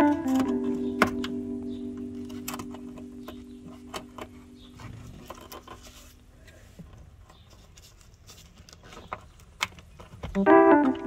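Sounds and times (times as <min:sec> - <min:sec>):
organ-like background music: 0:00.0 - 0:06.1, 0:10.4 - 0:11.0.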